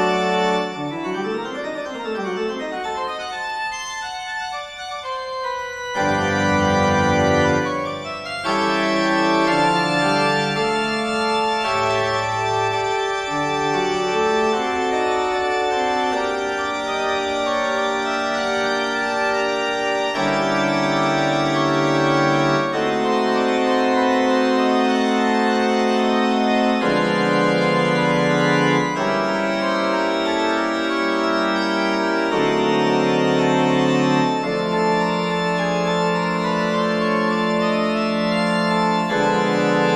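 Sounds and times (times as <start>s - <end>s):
organ playing slow chords: 0.0s - 39.9s.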